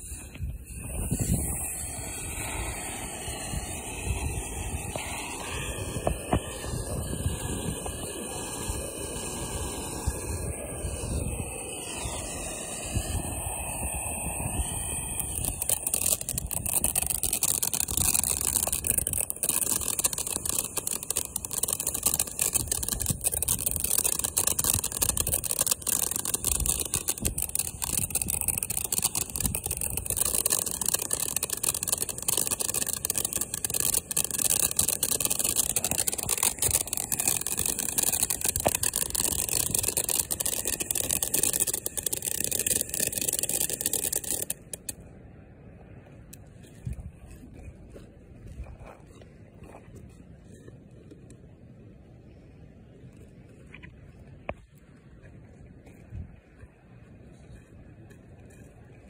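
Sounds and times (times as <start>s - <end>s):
fireworks crackling: 0.0s - 45.0s
fireworks hissing: 0.0s - 45.0s.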